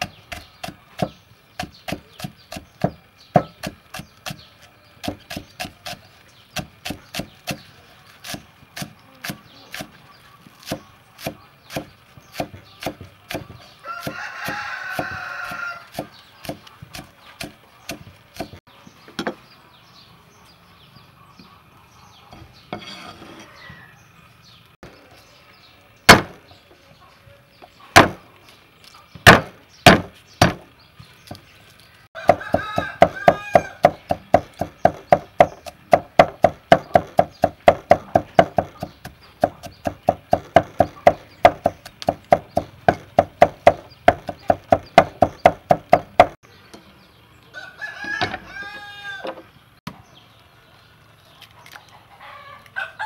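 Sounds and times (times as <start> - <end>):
cleaver chopping on wooden board: 0.0 - 4.4, 5.0 - 6.0, 6.6 - 7.6, 8.2 - 9.9, 10.6 - 18.6, 26.1 - 26.4, 28.0 - 28.2, 29.2 - 30.6, 32.2 - 46.4
rooster crowing: 13.8 - 16.0, 32.1 - 33.8, 47.5 - 49.4, 52.1 - 53.0.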